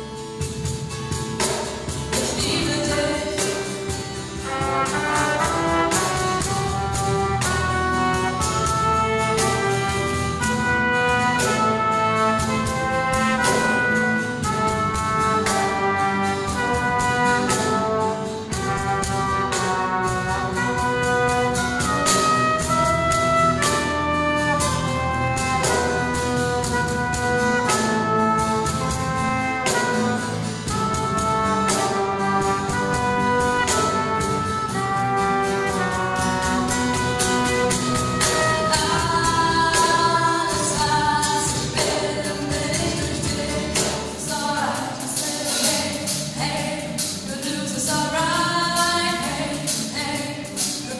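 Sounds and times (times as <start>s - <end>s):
cajon beat: 0.0s - 50.9s
small live band playing: 0.0s - 50.9s.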